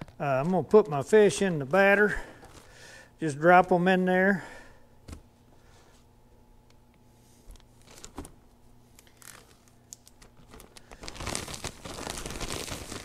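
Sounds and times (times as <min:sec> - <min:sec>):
low steady hum: 0:00.0 - 0:13.0
plastic bag rustling: 0:09.1 - 0:13.0.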